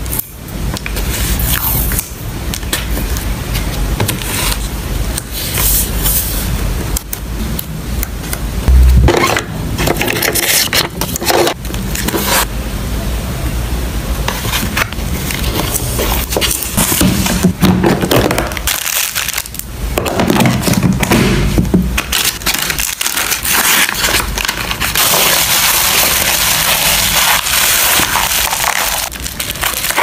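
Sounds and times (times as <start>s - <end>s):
loud thump: 8.7s - 9.6s.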